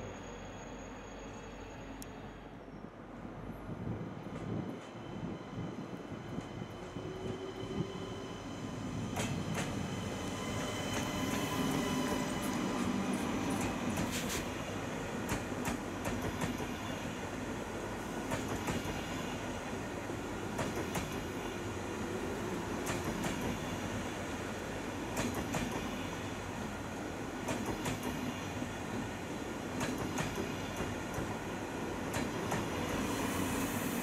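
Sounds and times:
train rumbling and humming: 0.0 - 34.0.

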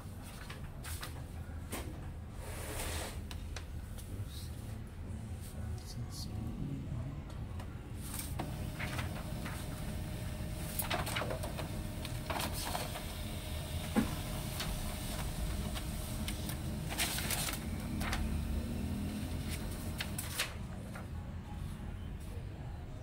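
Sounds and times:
laser printer mechanical hum: 7.3 - 20.6
paper rustling: 8.0 - 21.1.

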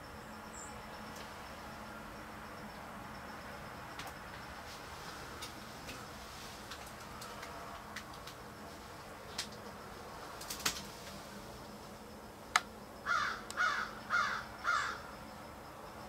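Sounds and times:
sharp clicks: 12.5 - 12.7
crow cawing: 13.0 - 15.1.

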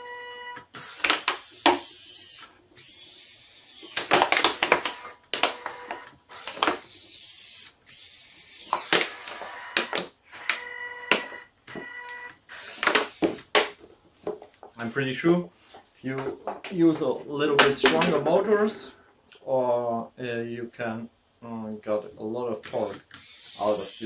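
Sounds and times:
servo motors buzzing whine: 4.8 - 9.8.

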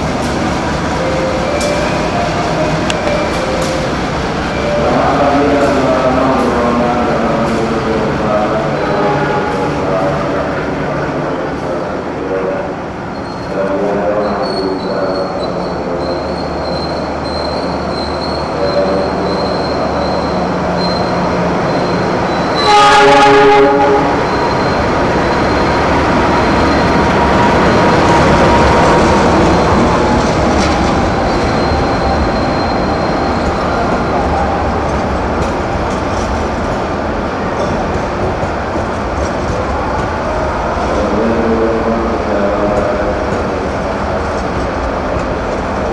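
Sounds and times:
train rumbling and rattling past: 0.0 - 45.9
locomotive horn blast: 22.5 - 24.4.

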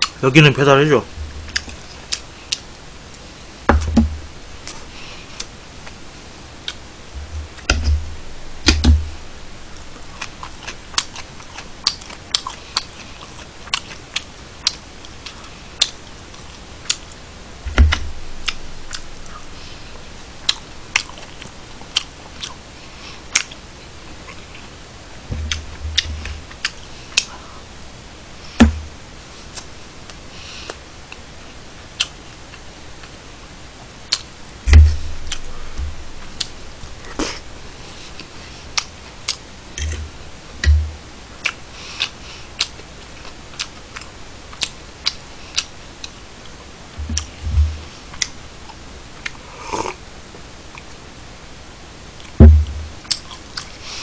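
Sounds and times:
dull thumps: 1.1 - 1.6, 3.7 - 4.5, 7.2 - 10.0, 17.6 - 20.3, 25.3 - 26.6, 28.6 - 29.0, 34.6 - 37.6, 39.8 - 41.0, 47.0 - 47.9, 52.4 - 53.0
utensil and mouth clicks: 10.2 - 16.0.

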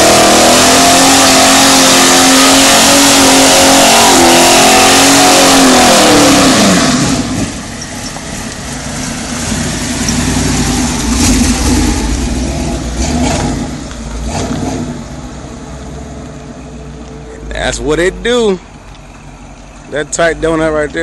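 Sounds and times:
car engine revving: 0.0 - 21.0
tyres spinning: 7.4 - 14.6.

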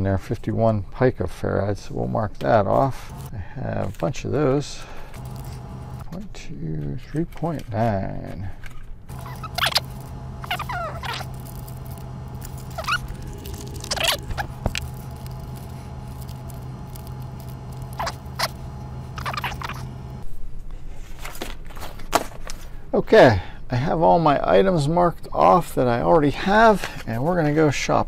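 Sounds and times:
steady low hum: 2.8 - 3.3, 5.1 - 6.1, 9.1 - 20.3.

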